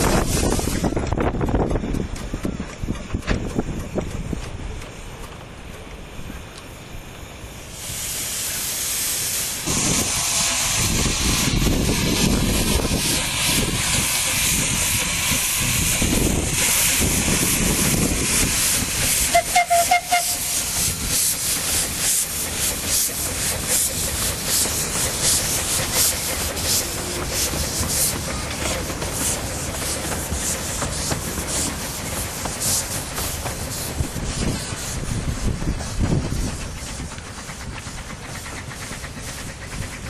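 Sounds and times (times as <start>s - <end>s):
steam hissing: 0.0s - 2.7s, 3.5s - 40.0s
locomotive exhaust beats: 0.0s - 6.8s, 8.4s - 40.0s
steam whistle toot: 19.2s - 20.9s.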